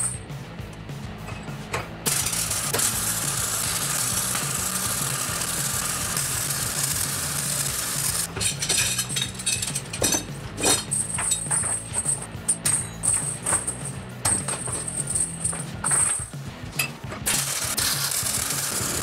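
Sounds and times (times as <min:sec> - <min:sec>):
arc welding crackling sizzle: 0:02.0 - 0:08.4, 0:17.3 - 0:19.0
chain links clinking: 0:08.2 - 0:18.8.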